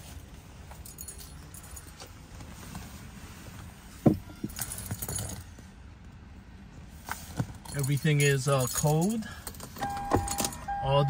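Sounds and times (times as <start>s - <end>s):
car keys jingling: 0.6s - 2.4s, 4.2s - 5.6s, 7.5s - 11.0s.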